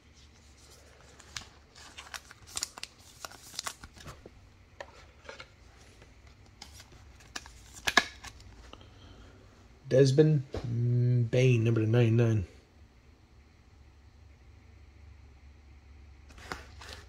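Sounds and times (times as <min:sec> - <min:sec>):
plastic card sleeve crinkling: 0:00.1 - 0:08.6.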